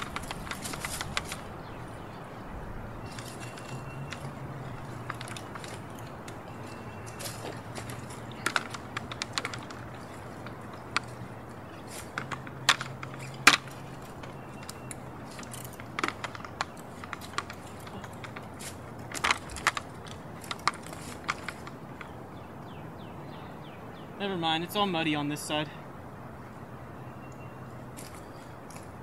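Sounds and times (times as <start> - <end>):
bike rattling and clicking: 0.0 - 22.6, 27.3 - 29.0.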